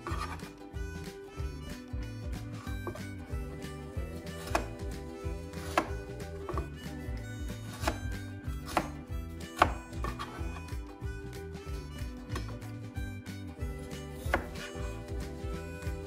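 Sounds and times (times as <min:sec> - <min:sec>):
knife chopping on cutting board: 0:00.0 - 0:00.5, 0:02.6 - 0:03.1, 0:04.2 - 0:06.7, 0:07.5 - 0:10.6, 0:14.2 - 0:16.0
soft background music: 0:00.0 - 0:16.0.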